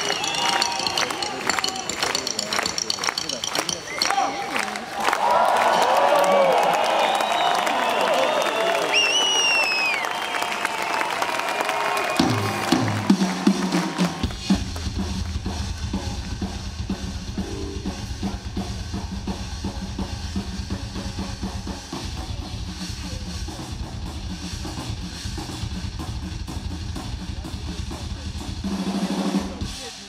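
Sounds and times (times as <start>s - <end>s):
snare and cymbal hits: 0.0s - 4.3s
bass drum strokes: 14.2s - 28.6s.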